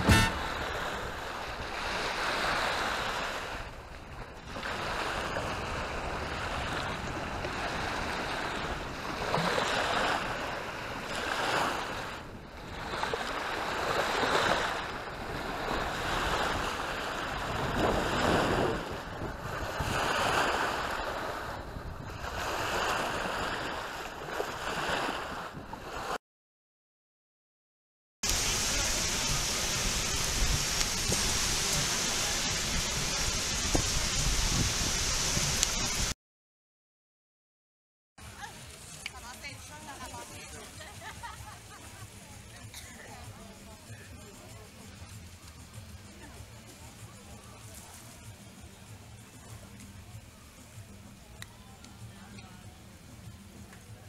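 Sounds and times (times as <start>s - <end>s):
small waves washing on sand: 0.0s - 26.2s, 28.2s - 36.2s, 38.2s - 50.2s
wind buffeting microphone: 15.1s - 20.6s, 28.8s - 36.1s.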